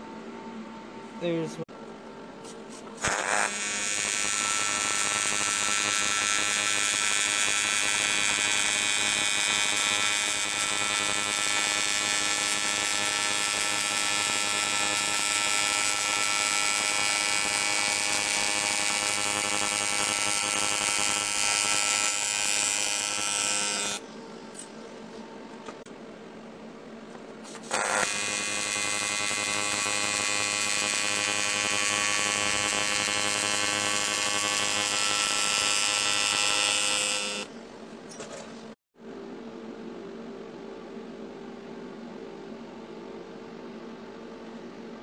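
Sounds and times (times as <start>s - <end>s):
welding arc buzzing: 2.7s - 24.1s, 27.1s - 37.5s.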